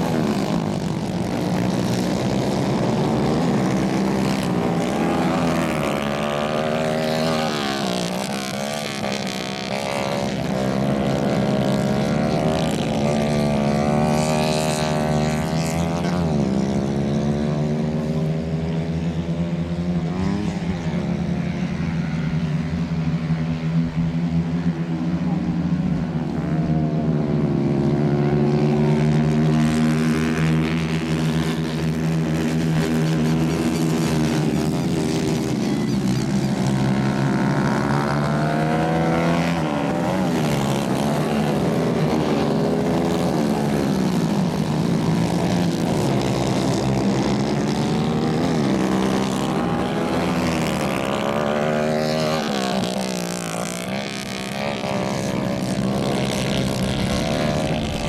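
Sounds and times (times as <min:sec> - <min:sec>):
kart engines racing: 0:00.0 - 0:58.0.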